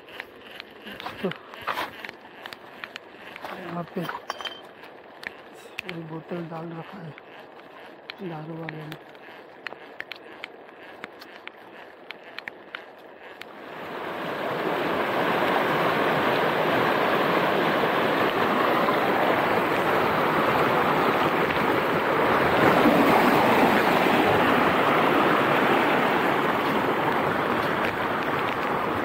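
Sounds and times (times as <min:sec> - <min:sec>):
water rushing over rocks: 0:13.5 - 0:29.0.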